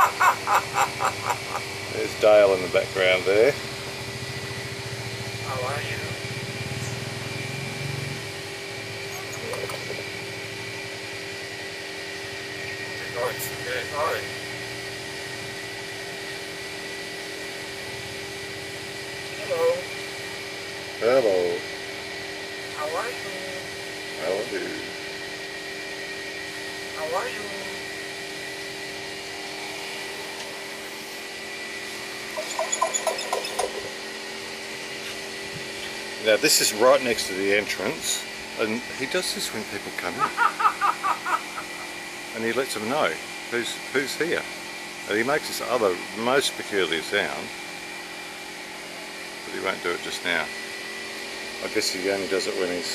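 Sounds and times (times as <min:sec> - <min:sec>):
steady mechanical hum: 0:00.0 - 0:52.9.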